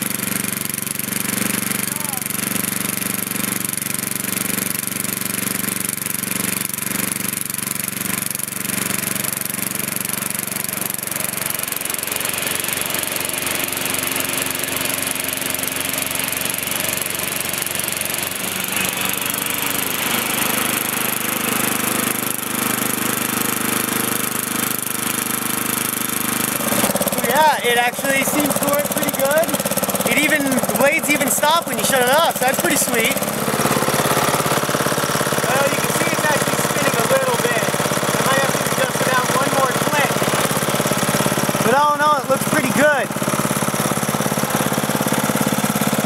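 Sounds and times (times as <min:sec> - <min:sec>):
riding lawn mower engine running: 0:00.0 - 0:46.0.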